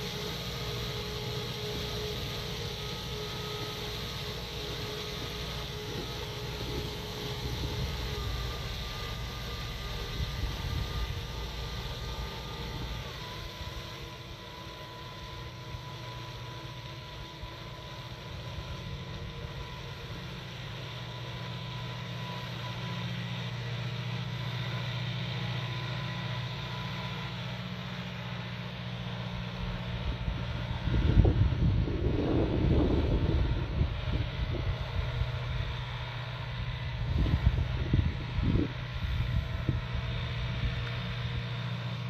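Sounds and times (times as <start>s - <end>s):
thin steady whine: 0.0s - 42.0s
tractor engine running: 0.0s - 42.0s
wind buffeting microphone: 30.2s - 35.7s, 36.8s - 40.1s.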